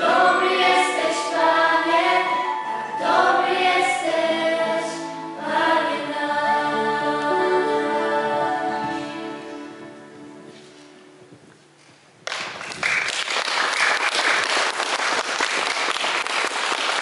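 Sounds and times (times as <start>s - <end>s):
choir singing with keyboard: 0.0s - 10.6s
audience applause: 12.3s - 17.0s.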